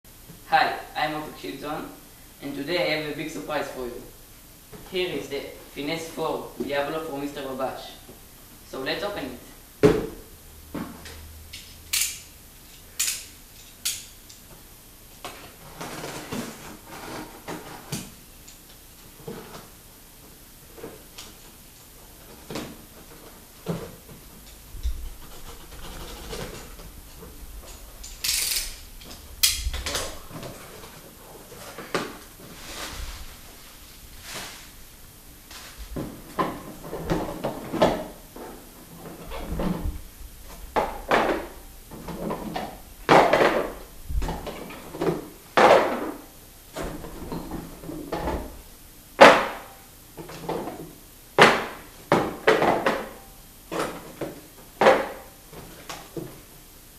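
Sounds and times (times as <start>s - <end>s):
packing tape ripping: 28.1s - 28.8s.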